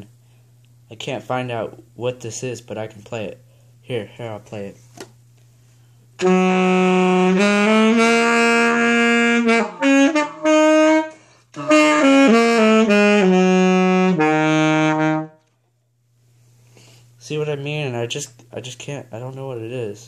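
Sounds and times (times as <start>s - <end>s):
saxophone playing blues phrases: 6.2s - 15.5s.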